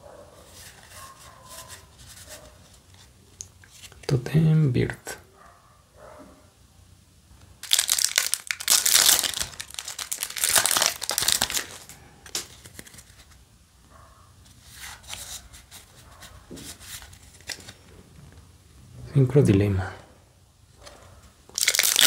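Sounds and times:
cards rustling: 7.6 - 13.4, 14.5 - 18.0
foil wrapper crinkling: 7.6 - 13.4, 21.5 - 22.0.

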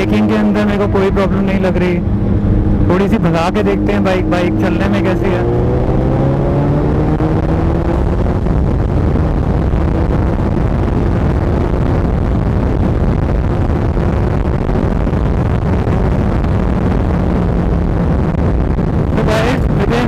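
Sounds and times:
motorcycle engine accelerating: 0.0 - 20.0
wind rush on microphone: 0.0 - 20.0.

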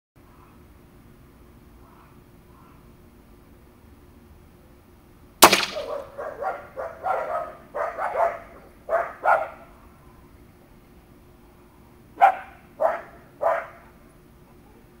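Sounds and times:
air rifle crack: 5.4 - 6.1
dog barking: 5.9 - 9.7, 12.2 - 13.9.

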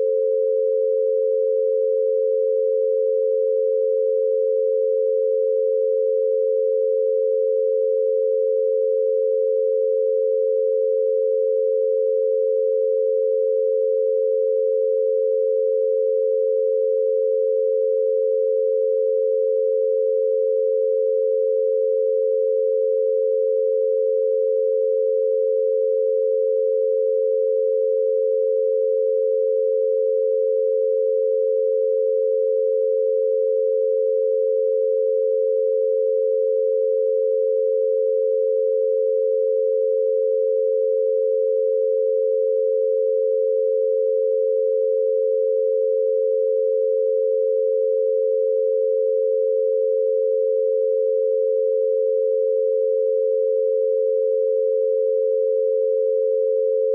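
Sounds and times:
steady pure sine tones: 0.0 - 56.9.

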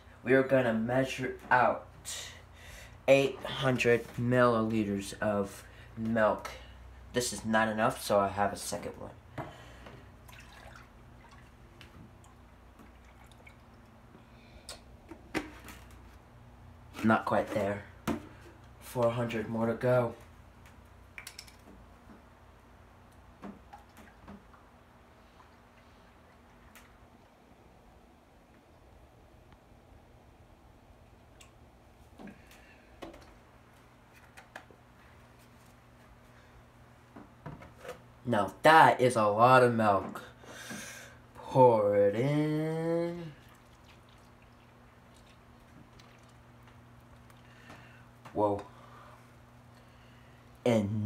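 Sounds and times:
low steady hum: 0.0 - 51.0
milk trickling into a cup: 10.3 - 11.5, 43.4 - 47.6.

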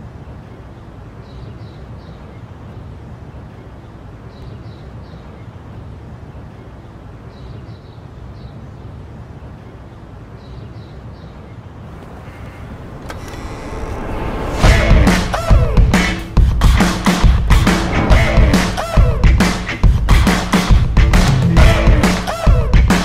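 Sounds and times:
steady low rumble: 11.9 - 20.2.

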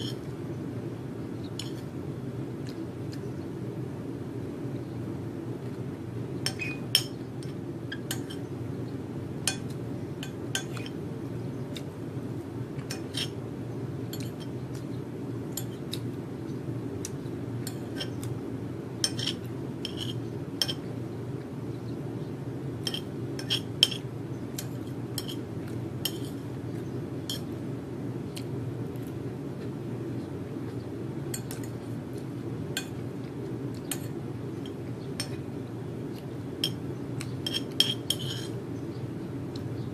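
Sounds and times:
spoon scraping a ceramic plate: 0.0 - 0.2, 6.5 - 7.2, 12.8 - 13.4, 17.7 - 18.3, 19.0 - 20.9, 22.8 - 26.4, 37.4 - 38.6
steady low hum: 0.0 - 39.9.

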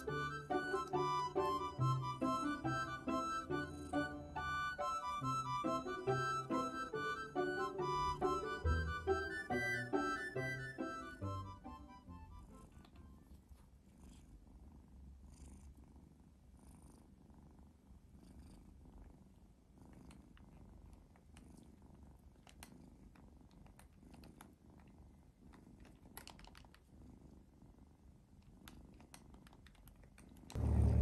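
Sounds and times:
kitten purring: 0.0 - 9.5, 10.9 - 31.0
faint clicks: 22.2 - 26.9, 28.4 - 30.6.

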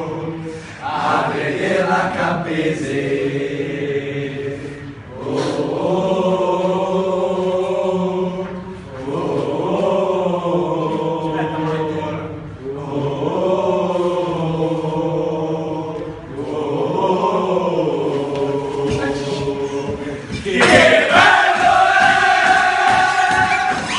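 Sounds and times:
group singing birthday song: 0.0 - 23.9.

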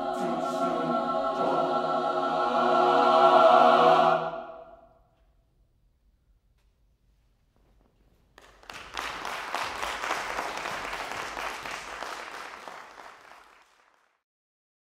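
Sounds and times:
audience applauding: 8.4 - 14.2.

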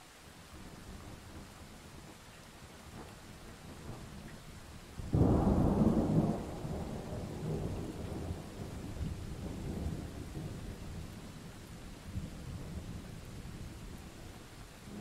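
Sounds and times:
steady rain: 0.0 - 15.0
thunder cracking and rumbling: 5.0 - 11.3.

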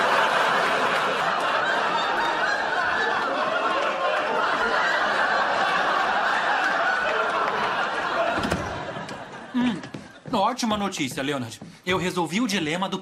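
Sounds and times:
studio audience laughing: 0.0 - 10.3.

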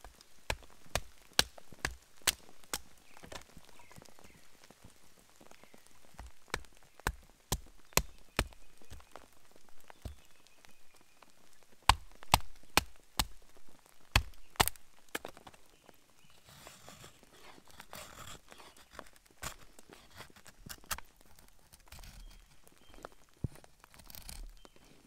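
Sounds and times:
knife scraping wood: 16.4 - 21.0, 23.9 - 24.6.

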